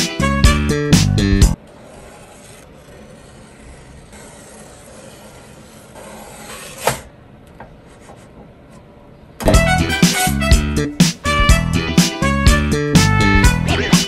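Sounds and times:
music: 0.0s - 1.6s, 9.4s - 14.0s.

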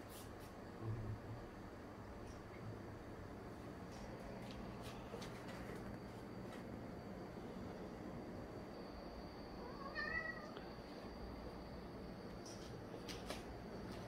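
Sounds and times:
cat meowing: 9.6s - 10.6s.

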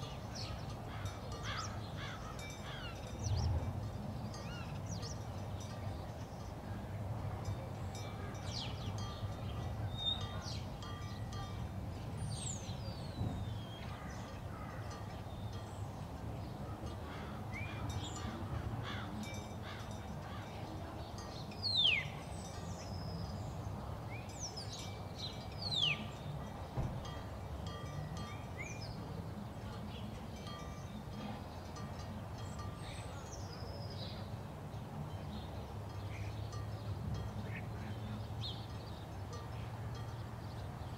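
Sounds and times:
birds whistling calls: 21.5s - 26.3s.

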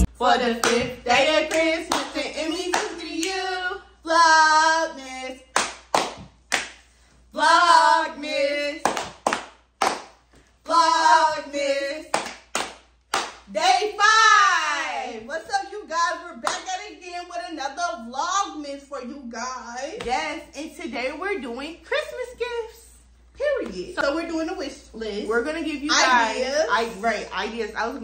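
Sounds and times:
women singing together: 0.0s - 5.7s, 7.3s - 9.3s, 10.6s - 12.5s, 13.5s - 18.4s
sharp hand claps: 5.5s - 6.9s, 8.8s - 10.2s, 12.1s - 13.5s.

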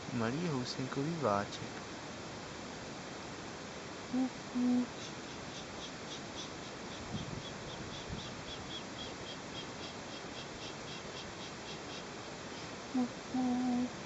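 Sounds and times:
insects chirping: 0.0s - 14.0s
low hoots: 4.1s - 14.0s.

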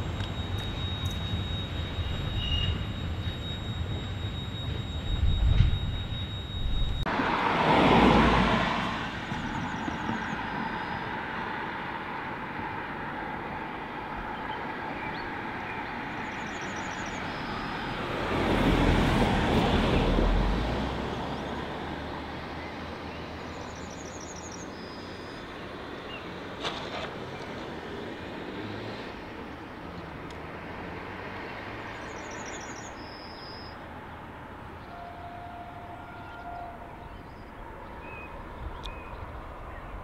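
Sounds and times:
vehicle passing close: 0.0s - 11.4s, 17.0s - 23.6s
vehicle rumble: 0.0s - 35.4s.

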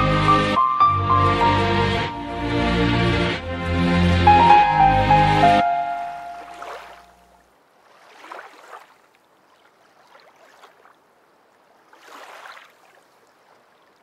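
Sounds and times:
sea waves lapping: 4.6s - 14.0s.

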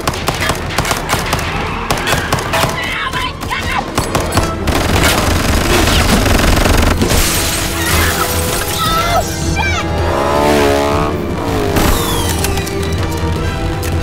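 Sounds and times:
action film score: 0.0s - 14.0s
glass shattering: 7.1s - 9.0s
car engine noise: 9.3s - 14.0s.

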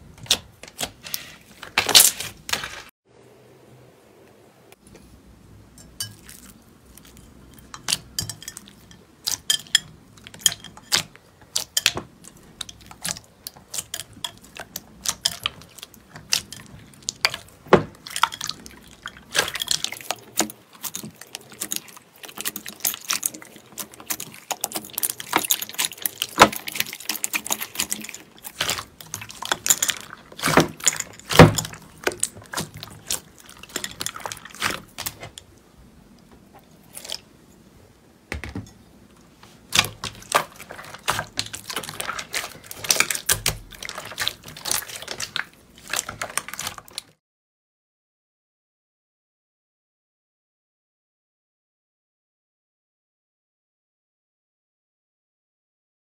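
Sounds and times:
slime squelching: 5.8s - 35.7s, 36.4s - 37.3s, 39.2s - 47.2s.

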